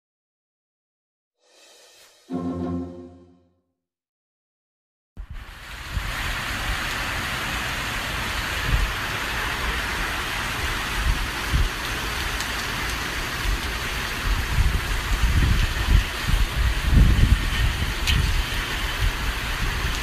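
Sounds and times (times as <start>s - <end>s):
heavy rain pouring: 5.2s - 20.0s
wind buffeting microphone: 14.2s - 20.0s.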